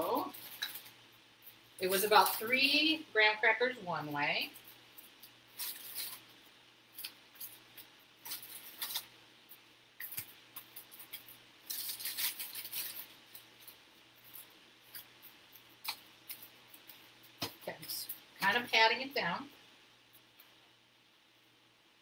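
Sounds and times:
aluminium foil rustling: 0.0 - 3.0, 4.4 - 19.2
cracker packet crinkling: 0.1 - 2.6, 4.5 - 18.4.

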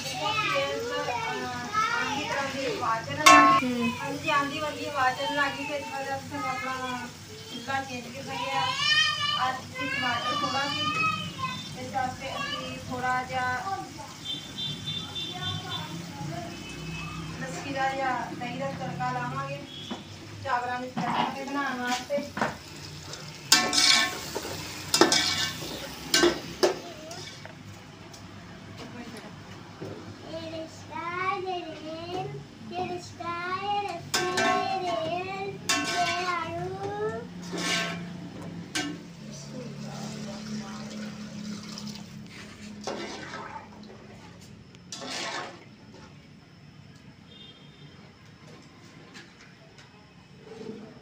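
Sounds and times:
spices frying in hot oil: 0.0 - 49.0
ladle scraping metal pot: 23.5 - 26.6, 35.6 - 36.5, 37.4 - 39.1, 41.5 - 44.0, 44.9 - 46.1
water poured into pot: 39.6 - 44.3, 44.9 - 45.7.

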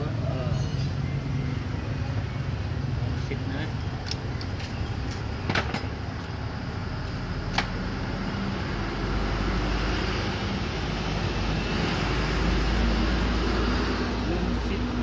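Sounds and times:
low rumble of traffic: 0.0 - 15.0
sharp clicks of handled parts: 3.8 - 5.9.

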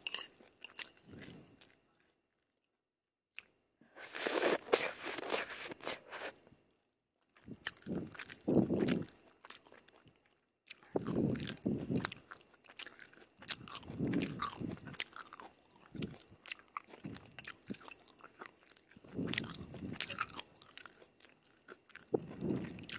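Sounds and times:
chewing: 0.0 - 2.6, 7.4 - 22.9
slurping noodles: 4.0 - 6.4.

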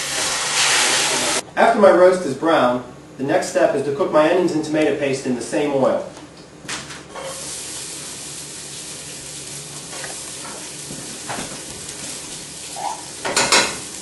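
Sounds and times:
hot oil sizzling: 0.0 - 1.4, 7.2 - 14.0.

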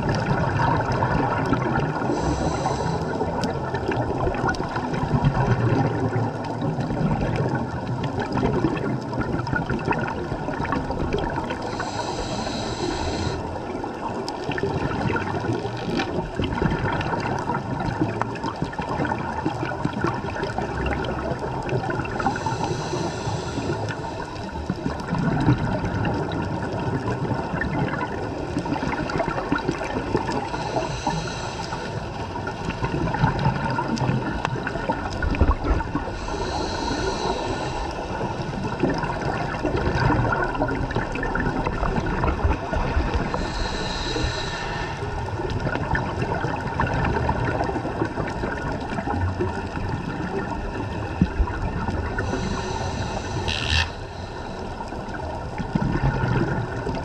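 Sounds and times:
gurgle of exhaled bubbles: 0.0 - 57.0
regulator air hiss on inhale: 2.0 - 3.6, 11.4 - 14.0, 22.1 - 25.0, 29.8 - 32.8, 35.4 - 39.3, 43.1 - 45.8, 51.9 - 55.6.

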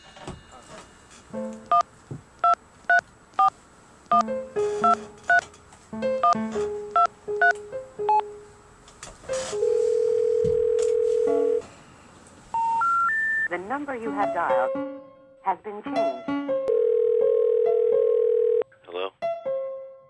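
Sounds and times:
telephone ringing tone: 9.5 - 11.6, 16.7 - 18.6
touch-tone keypad beeps: 12.6 - 13.5.

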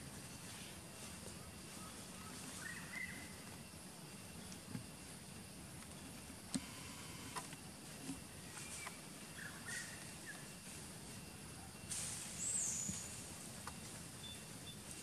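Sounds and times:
rustling of dry leaf litter: 6.0 - 15.0.

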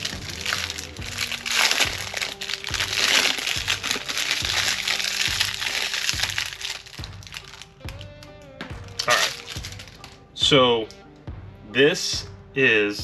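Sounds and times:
plastic packaging crinkling: 0.0 - 8.2, 8.9 - 10.2
background music with steady beat: 0.0 - 13.0.

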